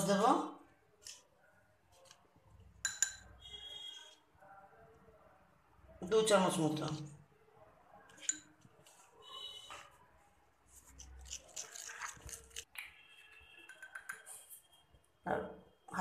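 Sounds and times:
spoon clicking against dish: 0:02.8 - 0:03.3, 0:13.7 - 0:14.3
spoon scraping sauce in dish: 0:10.7 - 0:12.7.

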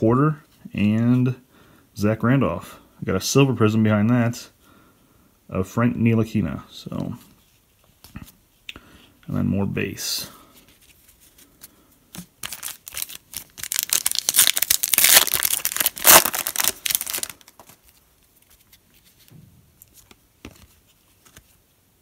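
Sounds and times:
foil wrapper tearing and crinkling: 0:12.4 - 0:17.8.

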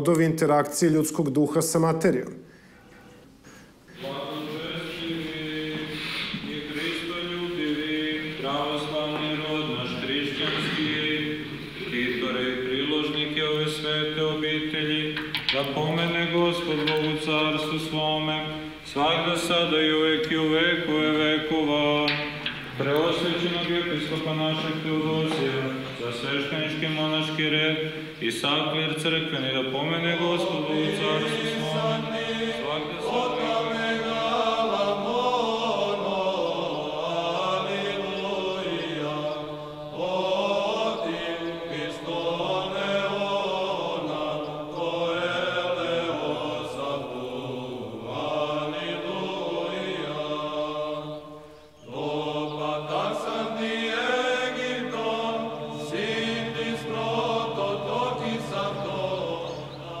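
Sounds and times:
male voices chanting: 0:03.9 - 1:00.0.

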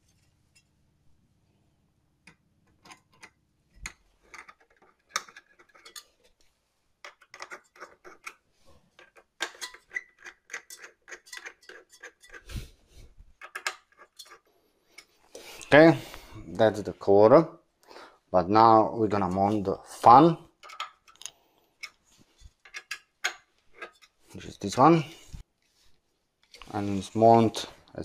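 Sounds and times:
metallic clicking of screws: 0:22.6 - 0:24.2.

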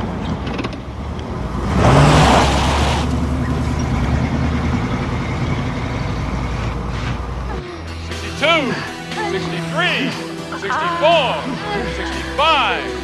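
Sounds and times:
car engine revving and driving off: 0:00.0 - 0:07.7.

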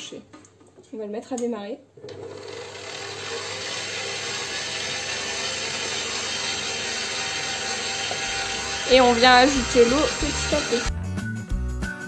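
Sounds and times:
stand mixer motor running: 0:02.1 - 0:10.9.

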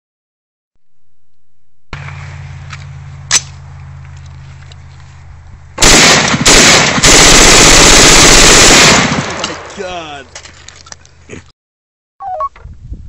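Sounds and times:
rapid rifle shots: 0:05.8 - 0:09.8.

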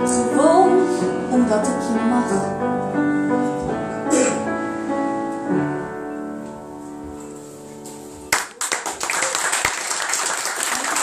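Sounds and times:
piano chord ringing: 0:00.0 - 0:08.3
audience applause: 0:08.3 - 0:11.0.

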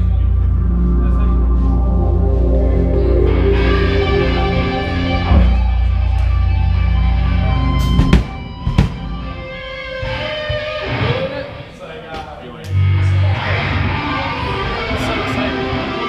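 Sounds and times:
electric guitar and bass drone: 0:00.0 - 0:11.2, 0:12.7 - 0:16.0
sharp drum hits: 0:07.8 - 0:09.4.

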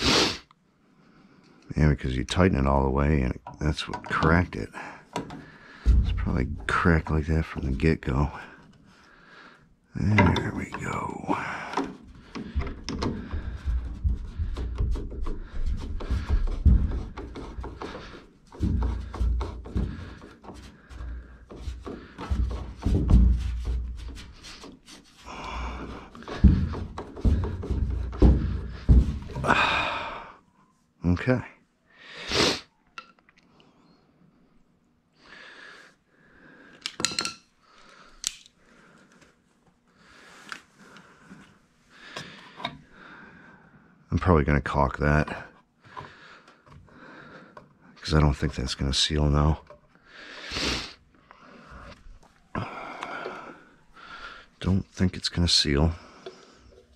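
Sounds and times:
low rumbling bumps: 0:05.7 - 0:08.4
plastic parts clicking: 0:38.2 - 0:38.6.

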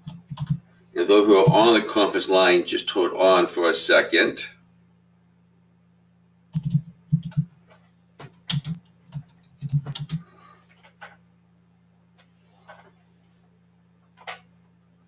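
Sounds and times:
typing on computer keyboard: 0:00.0 - 0:00.6, 0:06.5 - 0:07.5, 0:08.4 - 0:10.2
faint low hum: 0:00.0 - 0:15.0.

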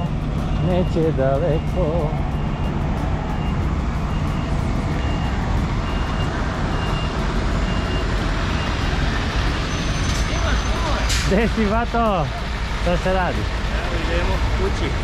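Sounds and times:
reversing alarm beeping: 0:00.0 - 0:10.9
diesel truck engine running: 0:00.0 - 0:15.0.

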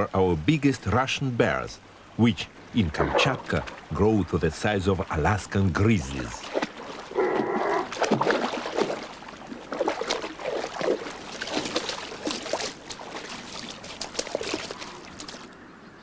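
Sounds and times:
bear splashing through water: 0:03.0 - 0:04.0, 0:06.0 - 0:15.5.

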